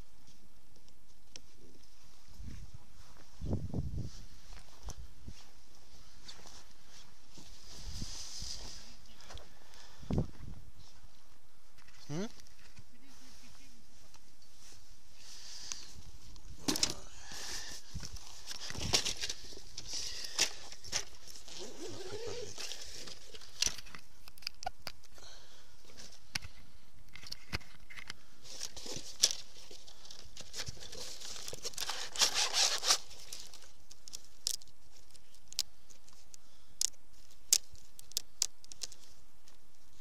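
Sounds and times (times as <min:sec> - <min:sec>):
fabric and plastic rustling: 0:12.5 - 0:24.2, 0:27.4 - 0:36.3
small clicks and knocks: 0:25.9 - 0:29.8, 0:33.2 - 0:39.9.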